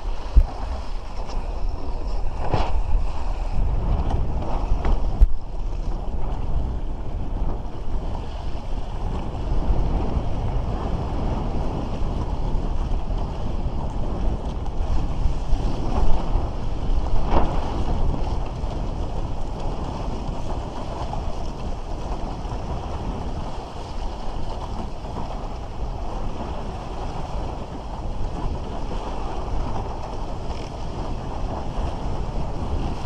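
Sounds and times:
water rushing and splashing: 0:00.0 - 0:12.1
wind noise on microphone: 0:00.0 - 0:33.0.

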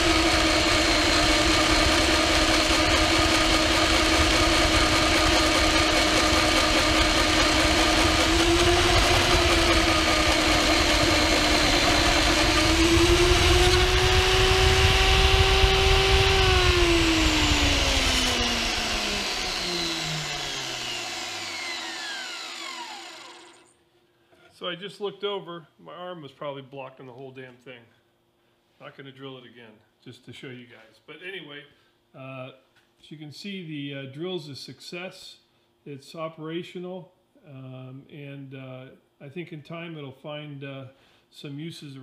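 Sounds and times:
drill motor boring steel: 0:00.0 - 0:23.7
motor winding down: 0:00.0 - 0:23.8.

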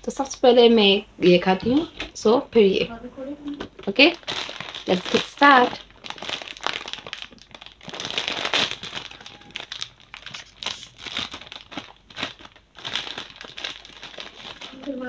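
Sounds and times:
plastic chip packets crinkling: 0:03.6 - 0:15.0.

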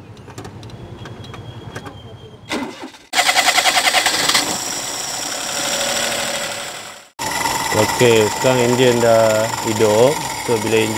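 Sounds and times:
car engine cranking and starting: 0:02.5 - 0:10.9.

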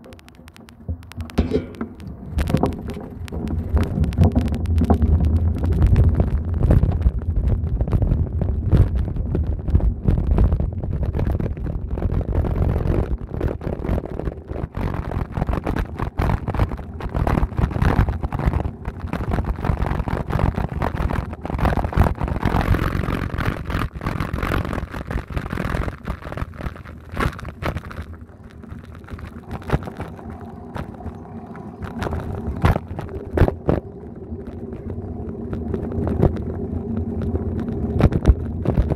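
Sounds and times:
bicycle tyres rumbling on bricks: 0:00.0 - 0:38.9
wind on microphone: 0:00.8 - 0:38.9.

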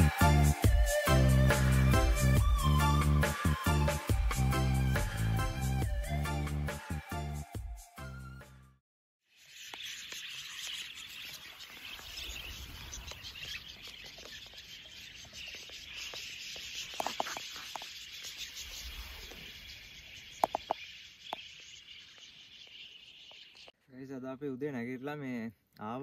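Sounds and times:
close bird chirps: 0:09.3 - 0:23.8
flock of birds twittering: 0:09.3 - 0:23.8.

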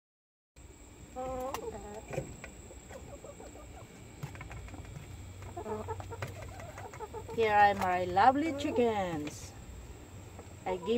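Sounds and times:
hens clucking: 0:01.1 - 0:10.9
beaks pecking at a plate: 0:01.2 - 0:09.5
hen pitched call: 0:10.6 - 0:10.9.

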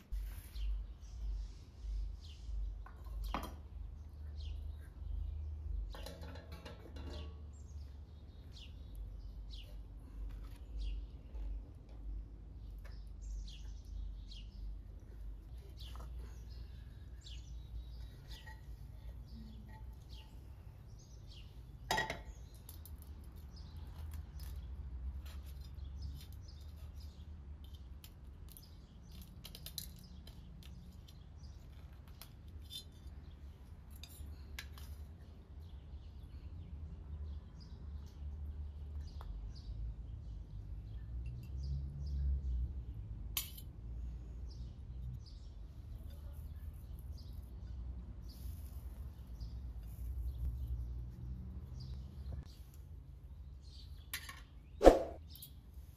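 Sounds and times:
birds chirping: 0:00.0 - 0:24.8.

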